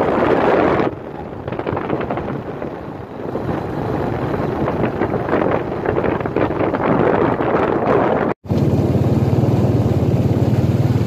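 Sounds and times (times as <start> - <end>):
wind buffeting microphone: 0.0 - 8.4
vehicle driving on dirt road: 0.0 - 11.0.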